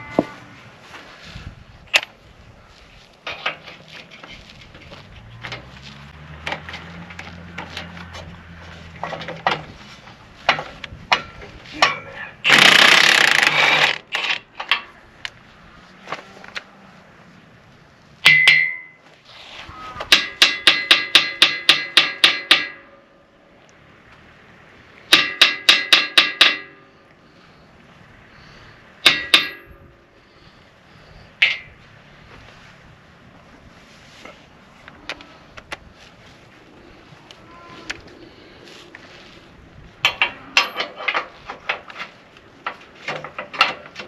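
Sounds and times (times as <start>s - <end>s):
metal clanks and knocks: 3.2s - 5.7s, 6.3s - 15.0s, 18.2s - 19.0s, 20.0s - 23.1s, 25.1s - 26.9s, 29.0s - 29.9s, 31.4s - 31.8s, 40.0s - 44.0s.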